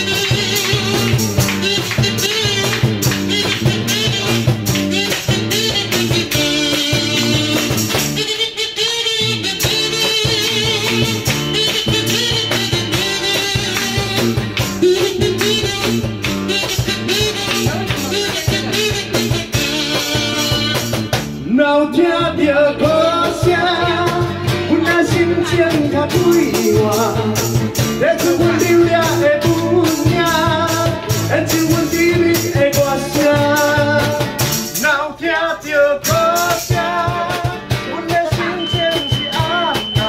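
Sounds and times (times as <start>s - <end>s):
steady beat: 0.0s - 8.3s, 9.3s - 21.4s
strummed acoustic guitar: 0.0s - 22.2s, 22.8s - 35.0s, 36.1s - 40.0s
electric bass: 0.0s - 35.0s
man singing into a microphone: 14.8s - 40.0s.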